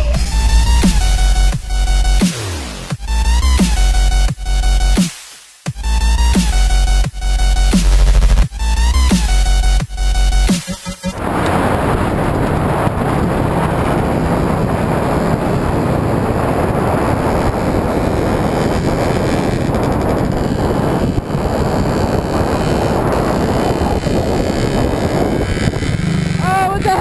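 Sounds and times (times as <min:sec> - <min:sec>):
motorcycle engine running: 0:05.7 - 0:27.0
wind on microphone: 0:11.1 - 0:27.0.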